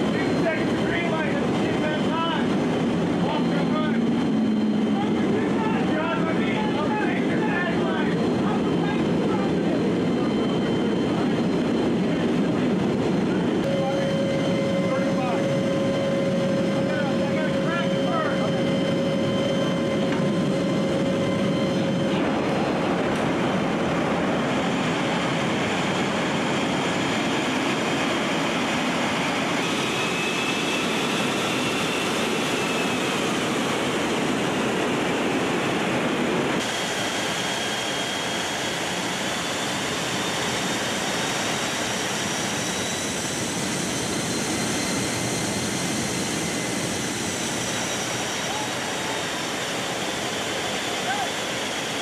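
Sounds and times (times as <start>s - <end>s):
jet engines and airstream rushing: 0.0s - 52.0s
faint high whine: 13.3s - 25.9s.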